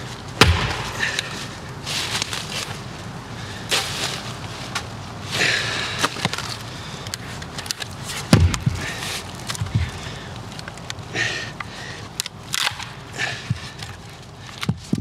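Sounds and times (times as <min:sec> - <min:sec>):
wood cracking and snapping: 0:00.2 - 0:02.9, 0:05.9 - 0:15.0
heavy thud: 0:00.4 - 0:01.4, 0:08.3 - 0:08.8.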